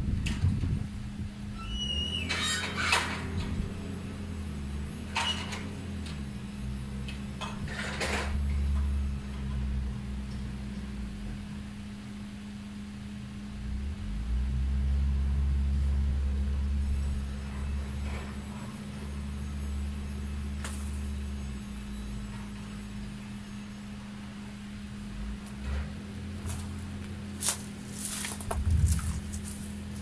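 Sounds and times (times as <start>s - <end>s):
wind rumbling on microphone: 0.0s - 2.2s, 28.0s - 30.0s
steady low hum: 2.9s - 30.0s.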